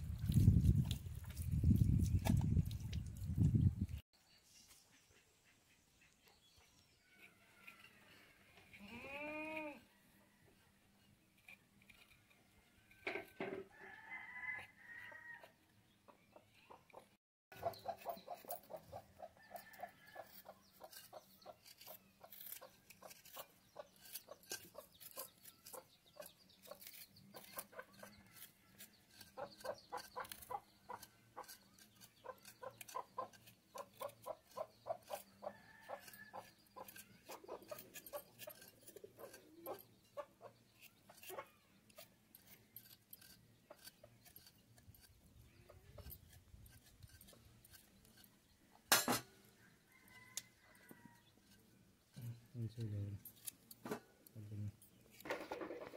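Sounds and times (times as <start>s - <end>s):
blades scraping roots: 0.0s - 4.0s, 19.7s - 48.4s
chickens clucking: 16.1s - 19.4s.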